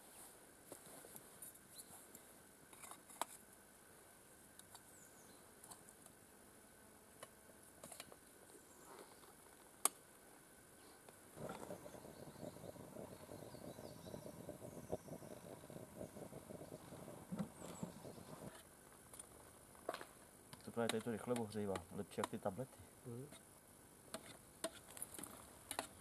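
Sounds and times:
lit stove crackling rush: 11.4 - 18.6.

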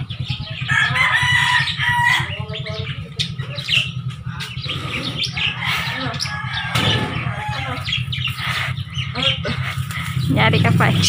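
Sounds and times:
steady low hum: 0.0 - 11.0
rooster crowing: 0.6 - 2.4, 5.4 - 8.1.

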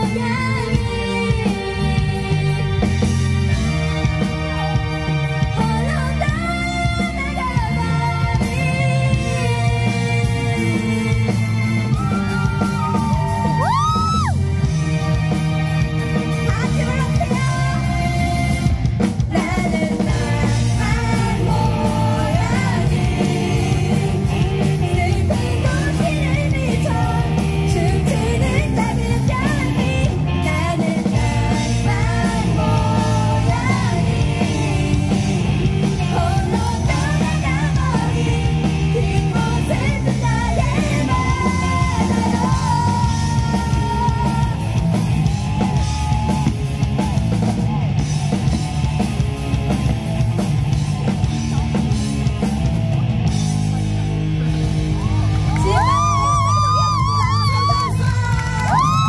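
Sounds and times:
woman singing: 0.0 - 2.8, 5.5 - 13.8, 16.4 - 18.6, 19.3 - 44.7, 57.2 - 59.0
live rock band playing: 0.0 - 59.0.

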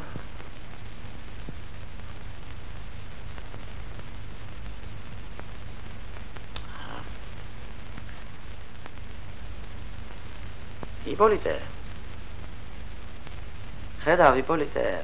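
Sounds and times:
film soundtrack hum and hiss: 0.0 - 15.0
faint clicks: 6.3 - 6.8.

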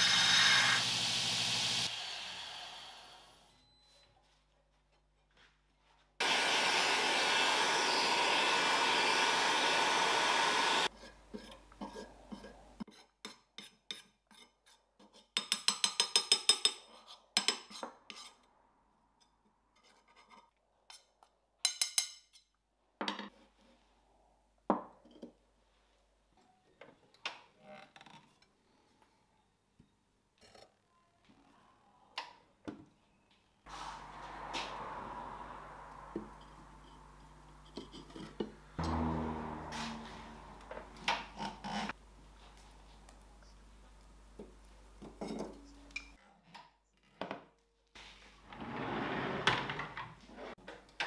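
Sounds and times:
belt grinder grinding steel: 0.0 - 3.2, 6.2 - 10.9.

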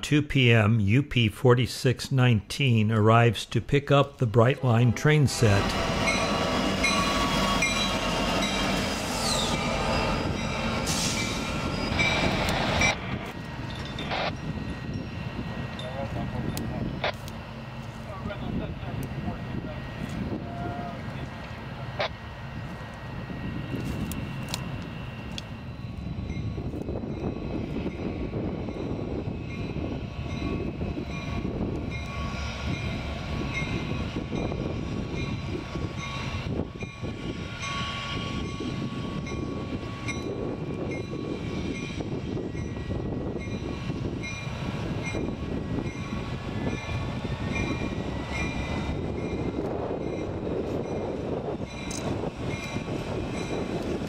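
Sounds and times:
locomotive engine rumbling: 4.1 - 54.0
locomotive bell ringing: 4.6 - 8.8, 13.6 - 17.1, 25.6 - 53.8.

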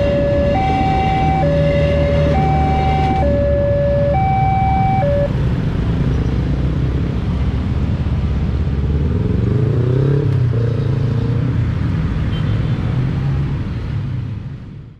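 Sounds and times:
engines revving: 0.0 - 6.0.

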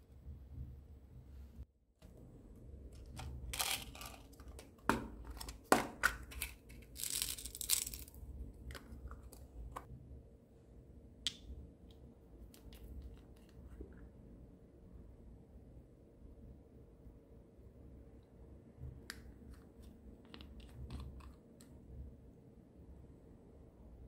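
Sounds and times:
beads poured into glass dish: 6.8 - 8.2.

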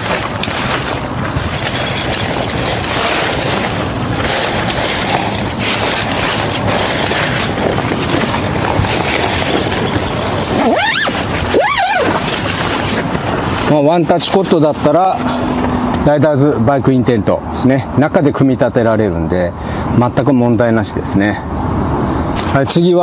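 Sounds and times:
sliding pitched sound: 0.0 - 14.3
tent fabric rustling: 0.0 - 15.7
wind noise on microphone: 0.0 - 23.0.

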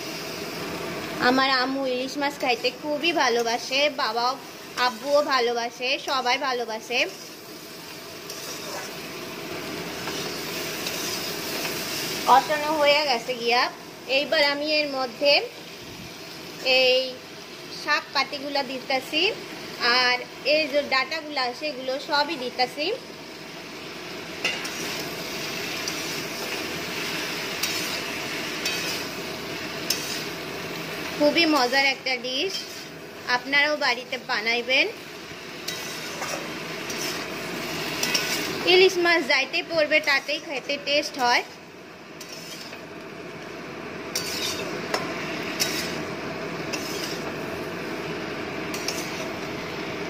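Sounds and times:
frying hiss: 0.0 - 50.0
greens sizzling in oil: 0.0 - 50.0
metal spatula scraping wok: 2.4 - 12.9, 24.4 - 34.4, 35.4 - 43.0, 44.1 - 47.6, 48.6 - 49.7
metal tongs clinking on pan: 24.4 - 25.2, 25.8 - 26.6, 27.5 - 28.0, 28.6 - 29.1, 29.8 - 30.2, 35.7 - 37.2, 38.0 - 38.5, 44.1 - 46.0, 48.7 - 49.2.

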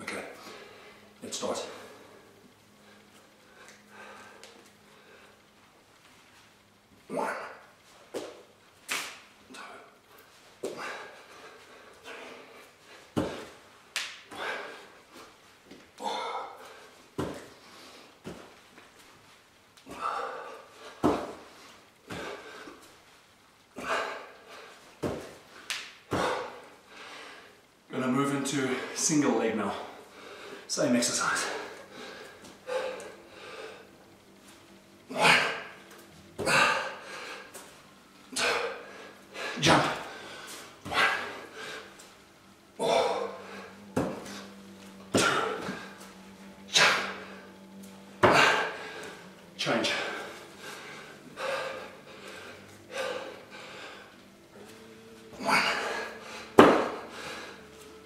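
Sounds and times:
man breathing forcefully: 0.4 - 5.6, 9.5 - 18.6, 19.8 - 23.0, 23.8 - 27.6, 29.7 - 34.0, 35.1 - 58.0
hands and feet thudding on floor: 17.2 - 17.5, 25.0 - 25.4.

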